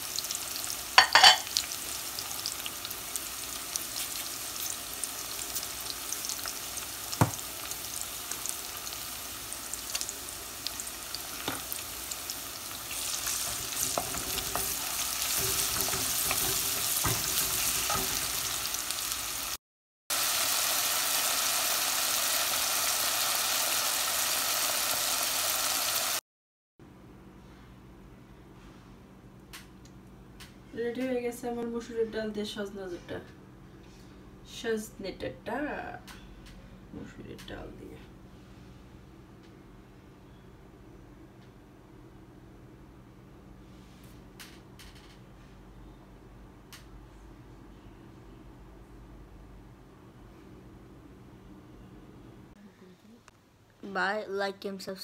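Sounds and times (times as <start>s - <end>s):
onions sizzling in hot oil: 0.0s - 26.2s.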